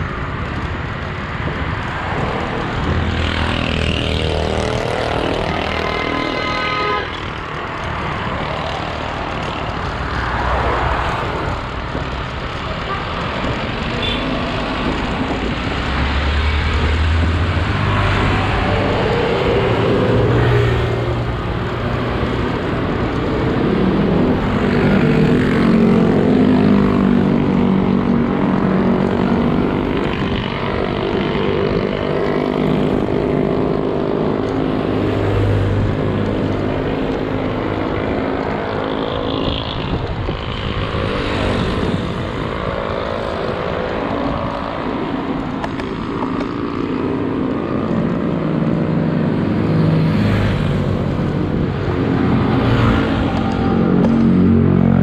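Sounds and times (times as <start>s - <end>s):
traffic passing: 0.0s - 55.0s
wind across microphone: 35.8s - 48.6s.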